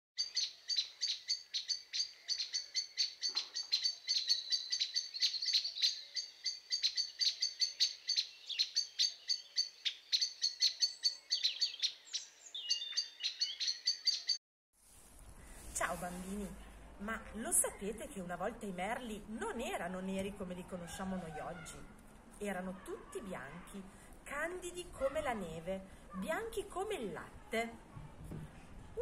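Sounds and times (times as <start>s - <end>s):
birds twittering: 0.2s - 14.4s
songbirds chirping: 0.2s - 14.4s.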